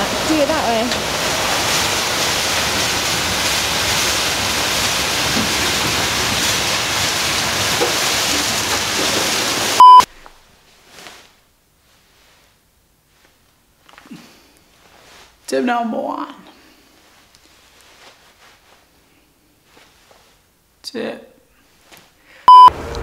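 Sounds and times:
car wash water spray and brushes: 0:00.0 - 0:10.1
loud short beep: 0:09.8 - 0:10.1, 0:22.5 - 0:22.7.

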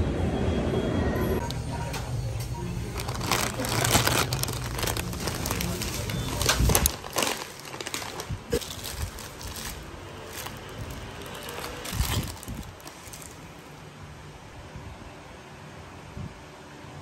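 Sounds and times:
paper bag rustling: 0:02.7 - 0:13.8.

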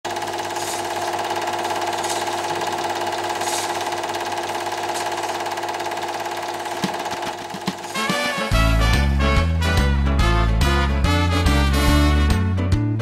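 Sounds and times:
film projector clatter: 0:00.0 - 0:08.4
motor hum: 0:00.0 - 0:08.9.

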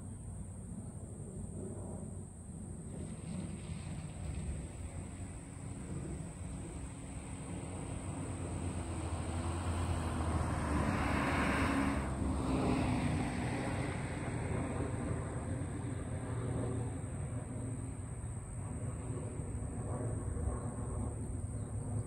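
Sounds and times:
car passing by: 0:02.9 - 0:17.4.

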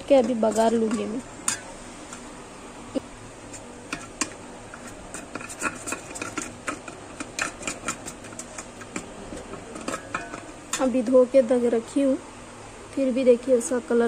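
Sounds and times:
spoon scraping steel bowl: 0:03.4 - 0:10.9.

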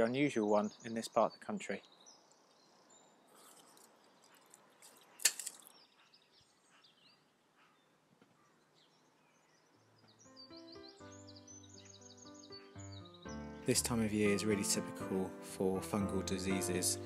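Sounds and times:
bird chirps: 0:00.0 - 0:14.0
music with held notes: 0:10.2 - 0:17.0.

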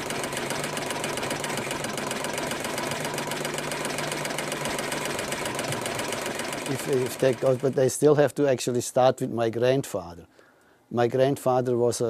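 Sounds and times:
embroidery machine clattering: 0:00.0 - 0:07.9.

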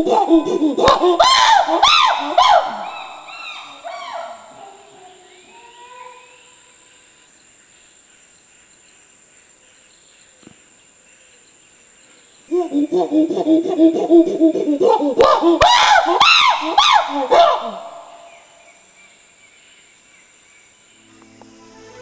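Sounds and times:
chimpanzees hooting and screaming: 0:00.0 - 0:05.2, 0:12.5 - 0:18.4
high insect whine: 0:00.0 - 0:22.0.

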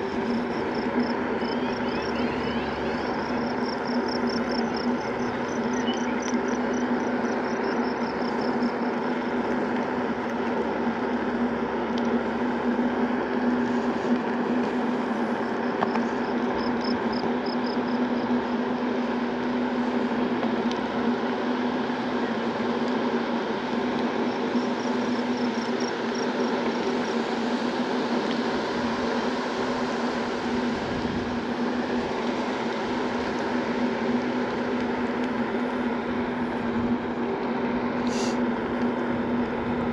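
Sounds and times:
electric scooter motor hum: 0:00.0 - 0:39.9
faint high chirping: 0:05.3 - 0:06.2.

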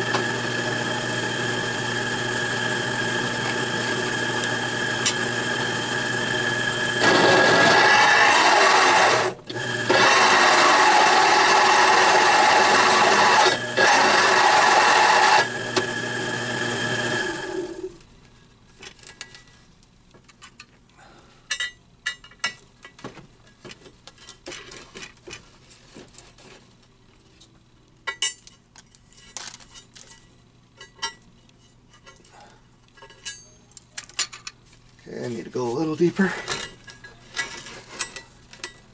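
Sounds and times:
drill press grinding steel: 0:00.0 - 0:18.0.

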